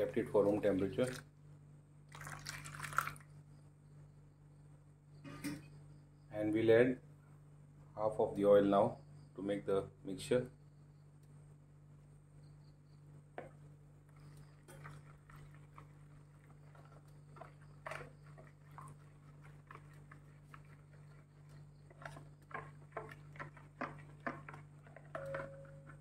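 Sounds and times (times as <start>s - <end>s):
hand mixing wet paste in bowl: 0.0s - 1.3s, 13.4s - 26.0s.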